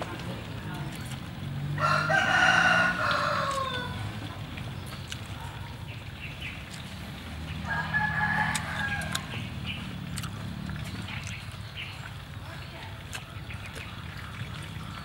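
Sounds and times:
rooster crowing: 1.8 - 4.0, 7.6 - 9.4.

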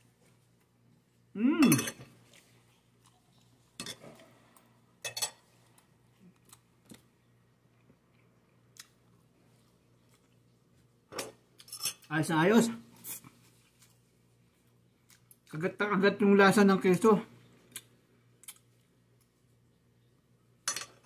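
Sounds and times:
person humming: 1.4 - 1.9.

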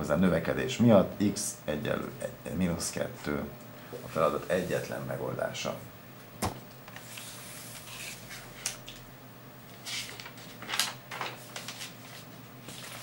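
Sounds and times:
paper rustling: 9.7 - 13.0.

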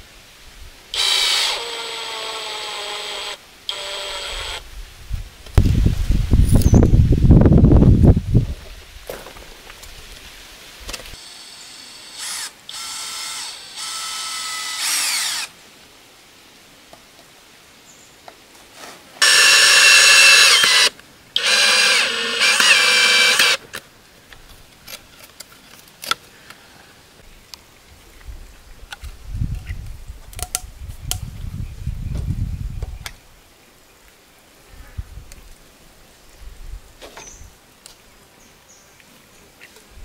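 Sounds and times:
cordless drill whining: 1.0 - 4.6, 11.3 - 15.5, 19.2 - 23.6.

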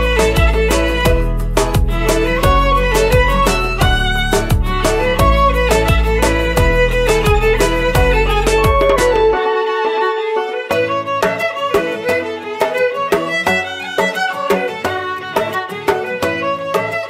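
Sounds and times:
violin melody over a beat: 0.0 - 17.0.

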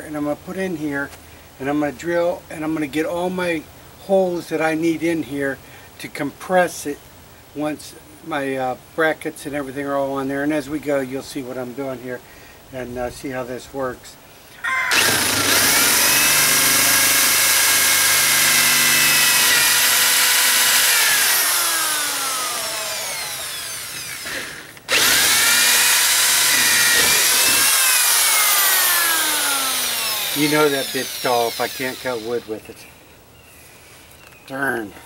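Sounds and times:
power drill boring through wood: 14.7 - 32.6.

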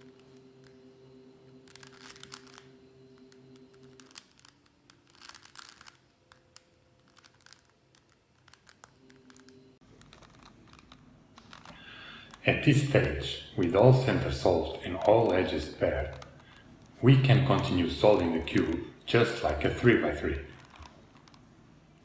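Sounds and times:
puzzle cube clicking and rattling: 1.7 - 2.7, 3.6 - 12.4, 13.9 - 21.4.

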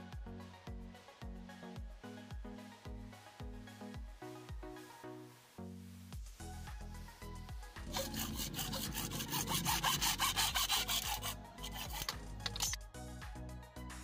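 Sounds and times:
hacksaw sawing plastic pipe: 7.9 - 12.8.

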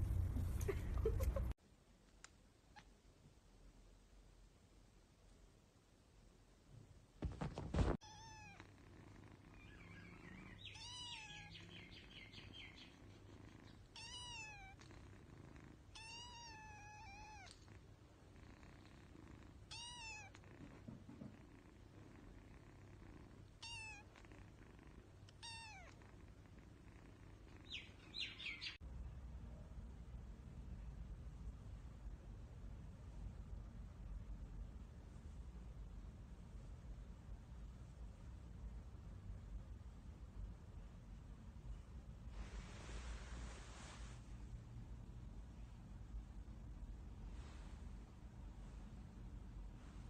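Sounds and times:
kitten meowing: 8.0 - 8.6, 9.6 - 11.7, 13.9 - 14.8, 16.0 - 17.6, 19.7 - 20.4, 23.6 - 24.1, 25.4 - 26.0.

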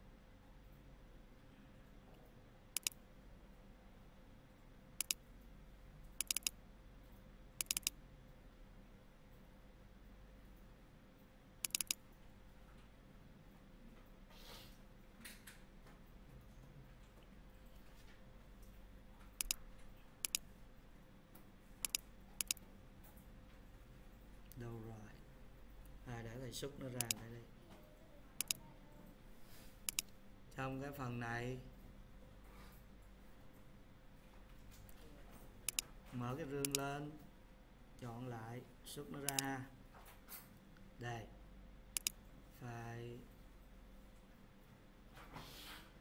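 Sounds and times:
faint steady hum: 0.0 - 45.4
mouse button clicking: 2.8 - 3.0, 5.0 - 5.2, 6.2 - 6.6, 7.6 - 8.0, 11.6 - 12.0, 19.4 - 19.6, 20.2 - 20.4, 21.8 - 22.6, 26.9 - 27.3, 28.4 - 28.6, 29.8 - 30.1, 36.6 - 36.8, 39.3 - 39.5, 42.0 - 42.2.

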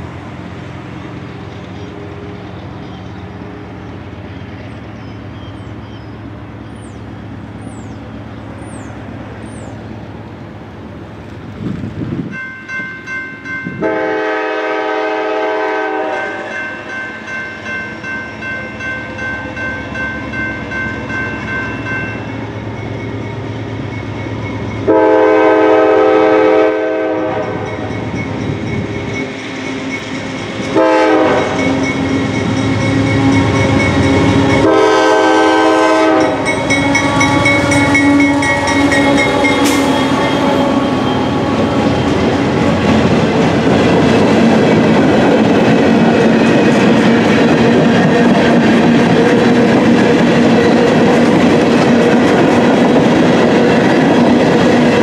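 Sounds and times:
diesel locomotive passing: 0.0 - 55.0
rail cars rumbling and clacking: 0.0 - 55.0
locomotive horn blasts: 13.7 - 16.7, 24.8 - 27.9, 30.7 - 42.5.

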